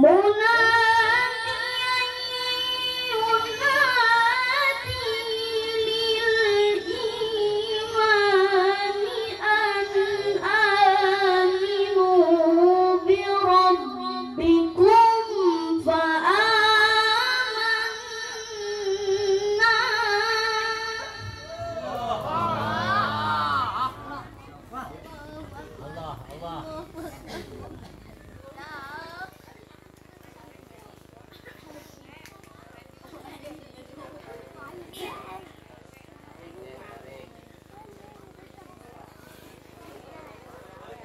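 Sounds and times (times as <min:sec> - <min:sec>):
child chanting recitation: 0:00.0 - 0:27.5, 0:28.4 - 0:29.5.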